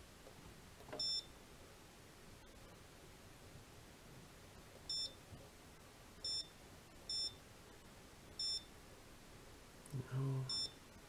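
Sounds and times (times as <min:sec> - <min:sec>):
short high-pitched beeps: 0:01.0 - 0:01.3, 0:04.9 - 0:05.2, 0:06.2 - 0:07.4, 0:08.4 - 0:08.7, 0:10.5 - 0:10.8.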